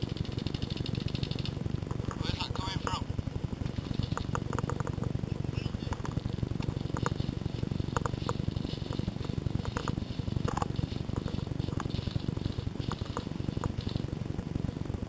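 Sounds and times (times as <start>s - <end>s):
camera handling rumble: 3.7s - 14.0s.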